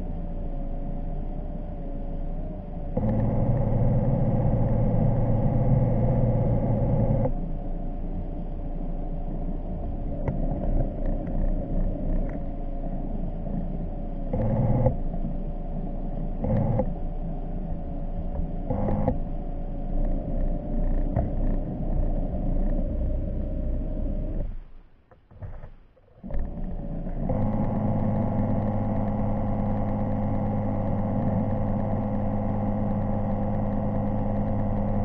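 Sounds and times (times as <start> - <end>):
electric thruster motors whining: 2.3 - 24.6, 26.2 - 35.0.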